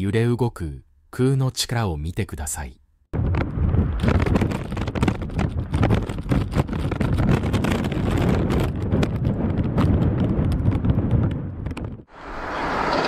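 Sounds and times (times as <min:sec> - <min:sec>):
wind buffeting microphone: 0:03.1 - 0:13.0.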